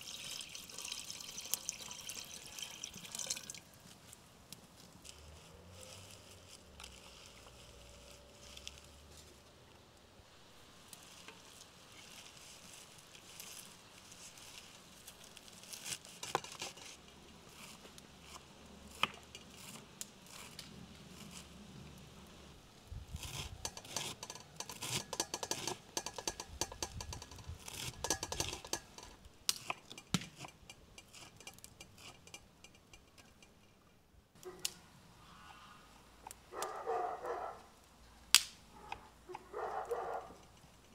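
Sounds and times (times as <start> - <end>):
leaves rustling: 0.0 - 29.7.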